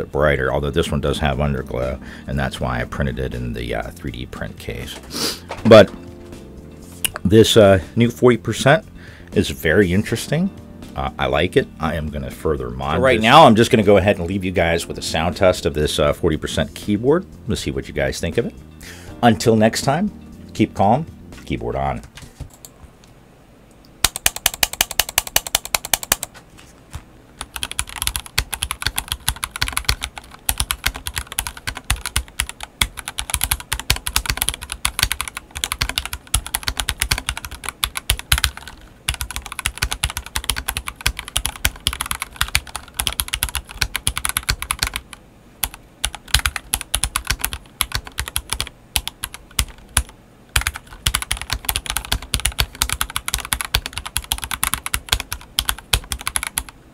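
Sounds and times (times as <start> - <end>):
mechanical keyboard typing: 24.0 - 26.3, 27.4 - 56.7.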